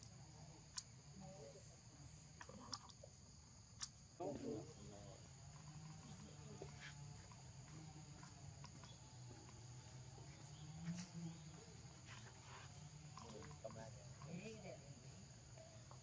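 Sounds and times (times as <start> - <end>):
insect chorus: 0.0 - 16.0
low background hum: 0.0 - 16.0.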